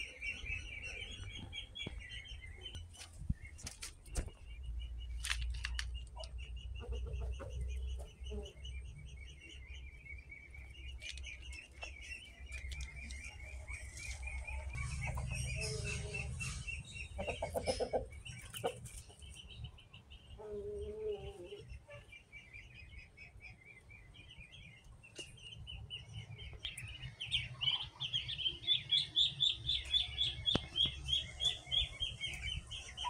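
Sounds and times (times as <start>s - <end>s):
chickens clucking: 0.0s - 9.0s, 10.5s - 22.3s
high-pitched bird chirping: 4.2s - 23.8s, 25.4s - 33.0s.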